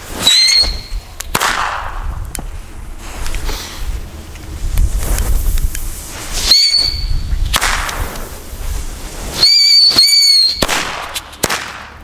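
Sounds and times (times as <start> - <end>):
whistling firecracker: 0.0 - 2.2, 6.1 - 8.2, 9.2 - 12.0
firecracker bang: 0.8 - 2.2, 6.5 - 8.3, 9.9 - 12.0.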